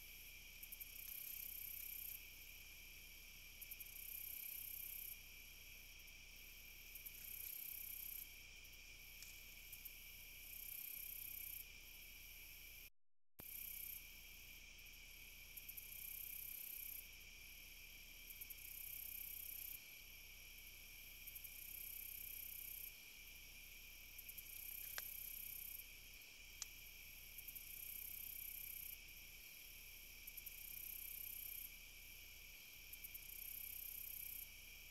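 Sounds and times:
faint ticks: 0:00.0 - 0:02.3, 0:06.9 - 0:08.4, 0:09.0 - 0:11.8, 0:24.2 - 0:31.8
crickets trilling: 0:00.0 - 0:34.9.

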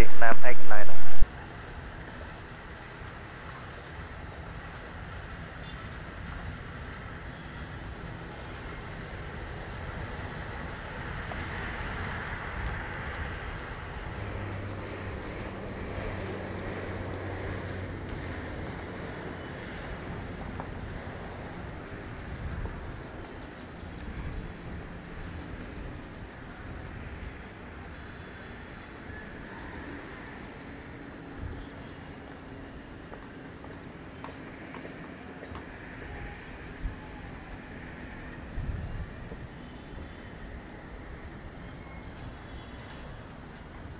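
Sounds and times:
distant jet airliner rumbling: 0:00.0 - 0:01.2.

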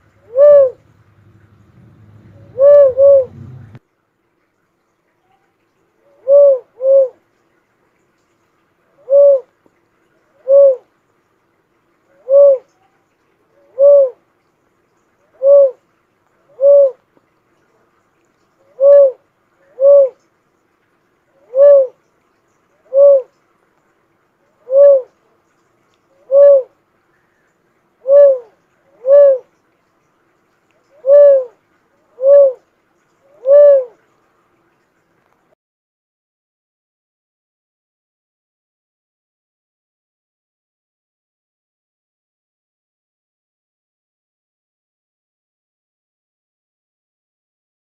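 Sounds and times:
dove cooing: 0:00.0 - 0:03.8, 0:06.0 - 0:07.2, 0:09.0 - 0:09.5, 0:10.4 - 0:10.9, 0:12.1 - 0:12.7, 0:13.5 - 0:14.2, 0:15.3 - 0:15.8, 0:16.5 - 0:17.0, 0:18.7 - 0:20.2, 0:21.4 - 0:22.0, 0:22.8 - 0:23.3, 0:24.5 - 0:25.2, 0:26.2 - 0:26.8, 0:28.0 - 0:29.5, 0:30.8 - 0:32.6, 0:33.3 - 0:34.0.

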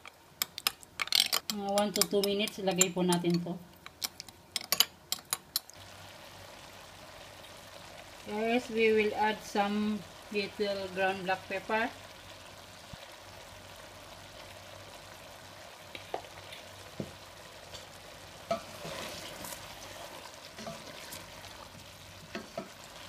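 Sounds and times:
food sizzling in a pot: 0:00.0 - 0:23.0
stirring in a pot: 0:17.8 - 0:23.0.

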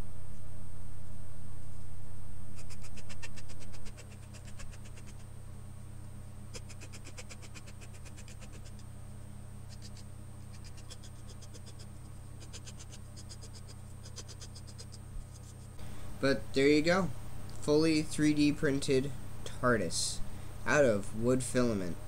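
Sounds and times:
metal file rasping on plastic: 0:02.6 - 0:05.2, 0:06.5 - 0:08.8, 0:09.7 - 0:15.8.

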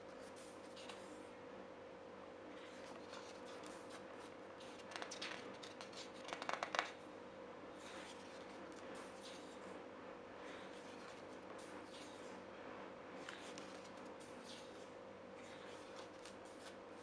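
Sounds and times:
faint steady hum: 0:00.0 - 0:17.0
book pages turning: 0:00.4 - 0:01.0, 0:02.6 - 0:07.0, 0:07.8 - 0:09.6, 0:10.5 - 0:12.2, 0:13.2 - 0:17.0
paper crackling: 0:02.6 - 0:07.0, 0:13.2 - 0:14.8, 0:15.4 - 0:17.0.

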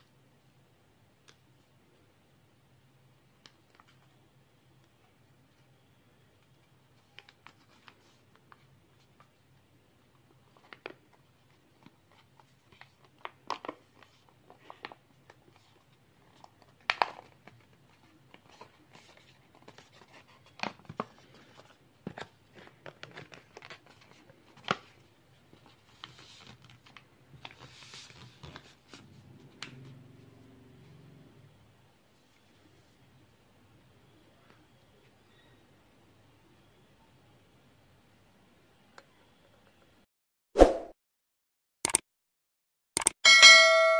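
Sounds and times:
paper crinkling: 0:10.4 - 0:29.2.

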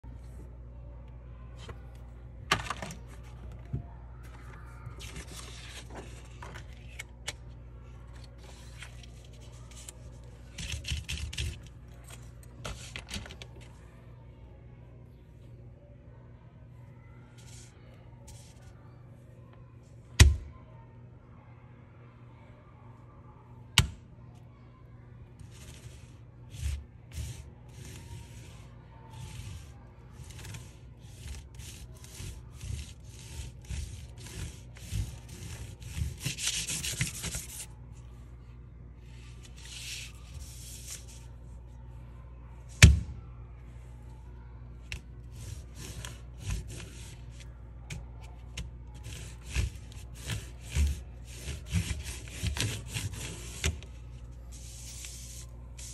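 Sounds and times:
crayon scratching on paper: 0:29.1 - 0:37.7, 0:49.0 - 0:53.8.

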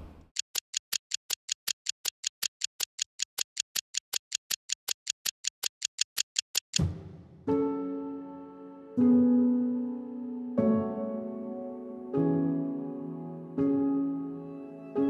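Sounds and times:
steady ticking: 0:00.2 - 0:06.8.

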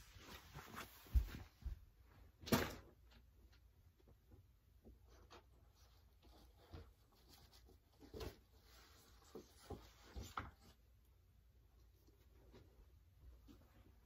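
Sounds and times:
rustling: 0:00.0 - 0:01.7, 0:04.9 - 0:11.1.

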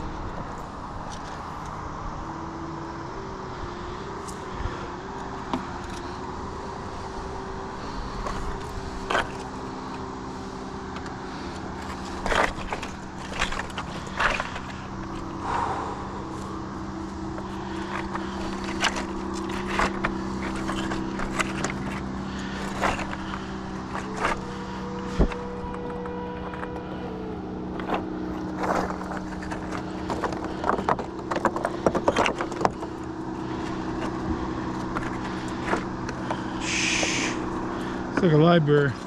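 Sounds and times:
motor traffic drone: 0:00.0 - 0:39.0
boots on stones: 0:10.9 - 0:25.6, 0:27.8 - 0:39.0.

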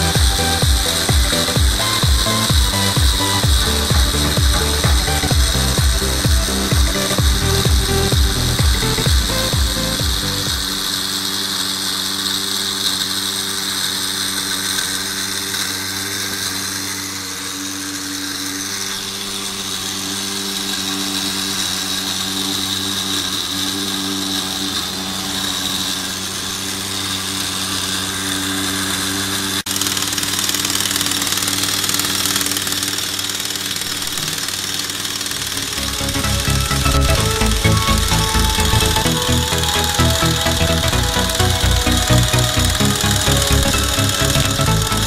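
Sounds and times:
small electric motors humming: 0:00.0 - 0:45.0.

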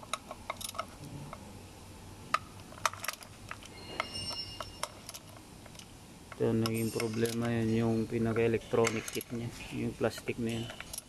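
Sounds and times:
ratcheting wrench clicking: 0:02.8 - 0:07.6
short metallic ring: 0:03.7 - 0:05.3, 0:06.6 - 0:09.3.

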